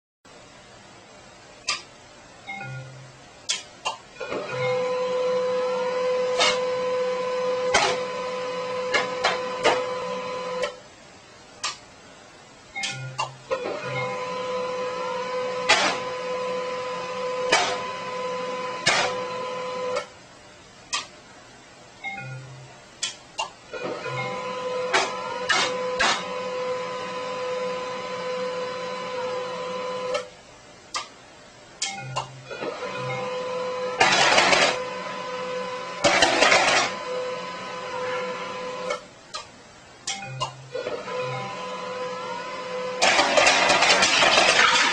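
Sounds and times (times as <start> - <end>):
printer motor whine: 4.2 - 10.8, 12.8 - 20.1, 23.7 - 30.3, 32.4 - 39.0, 40.7 - 44.9.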